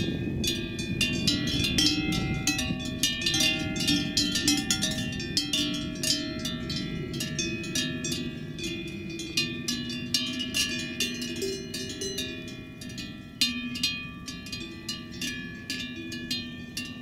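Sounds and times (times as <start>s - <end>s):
cowbells clanking: 0.0s - 17.0s.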